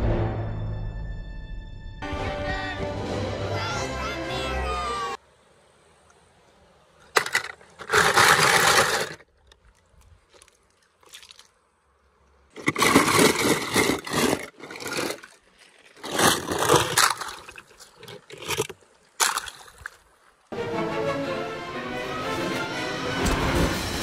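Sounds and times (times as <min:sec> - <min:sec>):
toy cars clattering in plastic tub: 0:07.1 - 0:09.3, 0:12.5 - 0:15.4, 0:16.0 - 0:19.5.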